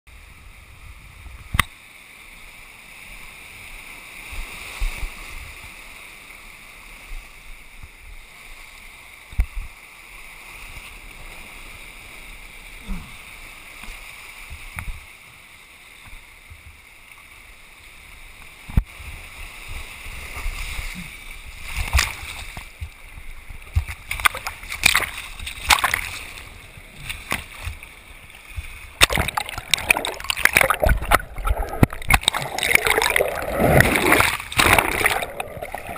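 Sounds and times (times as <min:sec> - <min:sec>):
surf splashing over rocks: 0:18.5 - 0:35.9.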